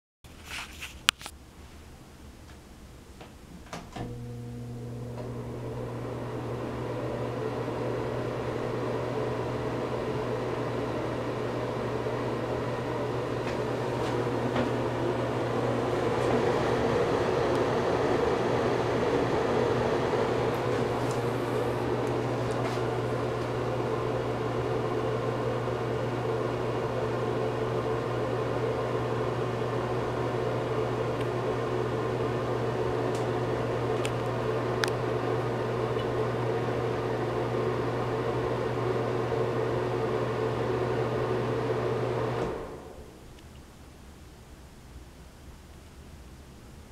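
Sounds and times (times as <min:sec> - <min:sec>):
exhaust fan motor hum: 0:03.6 - 0:43.4.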